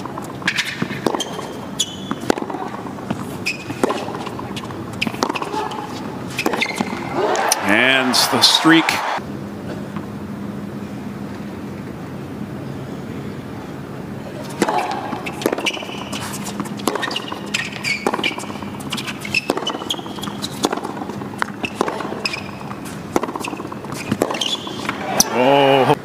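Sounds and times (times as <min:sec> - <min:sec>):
shoe squeaks: 0:00.0 - 0:07.9, 0:14.4 - 0:25.3
tennis ball strikes and bounces: 0:00.0 - 0:07.9, 0:14.4 - 0:25.5
arena hum: 0:00.0 - 0:26.0.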